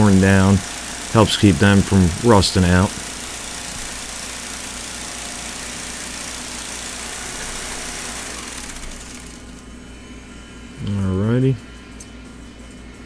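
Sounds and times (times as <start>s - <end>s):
small engine running: 0.0s - 10.0s
low background hum: 0.0s - 13.0s.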